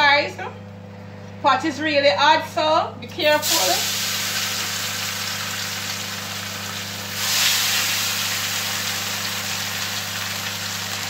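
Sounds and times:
steady low hum: 0.0 - 11.0
fish sizzling in hot oil: 3.4 - 11.0.

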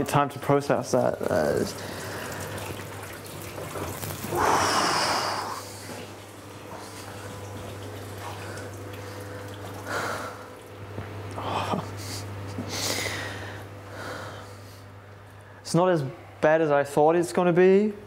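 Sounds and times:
steady low hum: 0.0 - 18.0
man sighing heavily: 11.4 - 14.3.

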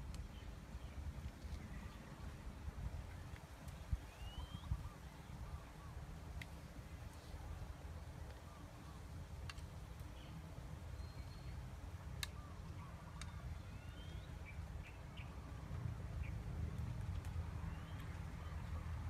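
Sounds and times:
bird chirps: 4.1 - 6.0, 10.2 - 11.6, 12.2 - 15.6.

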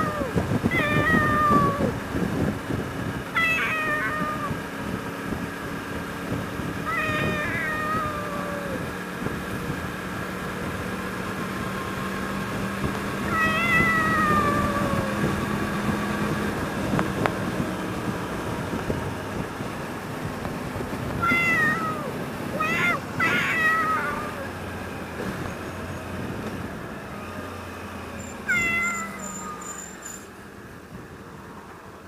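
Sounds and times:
cat meowing: 0.0 - 2.0, 3.4 - 4.6, 6.8 - 8.9, 13.2 - 15.4, 21.2 - 24.5, 28.4 - 29.7
motorcycle riding in traffic: 0.0 - 32.0.

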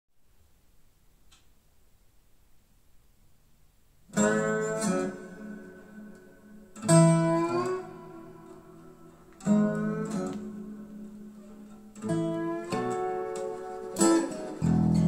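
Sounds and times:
strummed acoustic guitar chords: 4.1 - 15.0.

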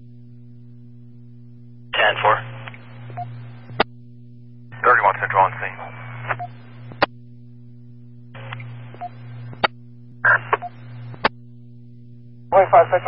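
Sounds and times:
electrical hum: 0.0 - 13.0
radio static hiss: 1.9 - 3.8, 4.7 - 7.1, 8.3 - 11.3, 12.5 - 13.0
radio squelch click: 2.6 - 3.9.

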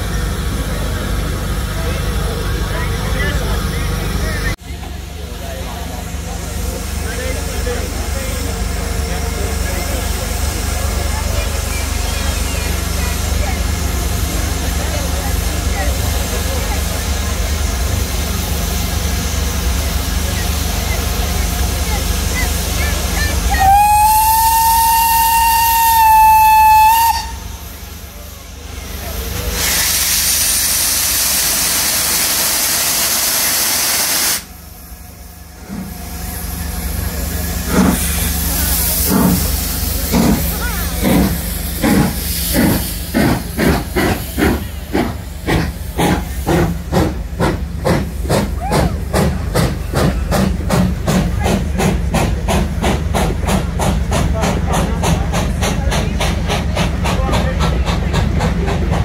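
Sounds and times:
steam locomotive chuffing: 0.0 - 59.0
steam locomotive whistle blast: 23.6 - 27.5.

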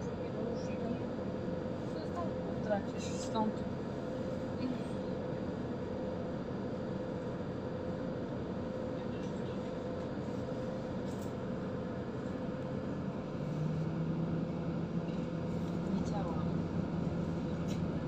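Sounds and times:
bus engine hum: 0.0 - 18.0
road noise: 12.8 - 18.0.

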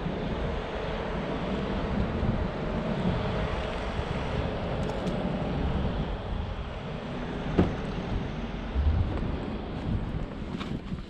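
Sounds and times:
wind buffeting microphone: 0.0 - 11.0
low thump: 8.8 - 9.4.

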